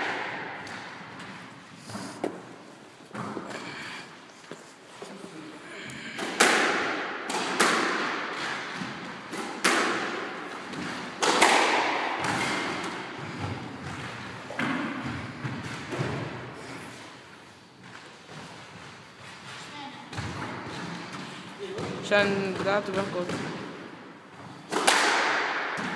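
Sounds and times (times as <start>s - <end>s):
squash ball cracking off rackets: 5.9s - 16.5s, 24.7s - 25.9s.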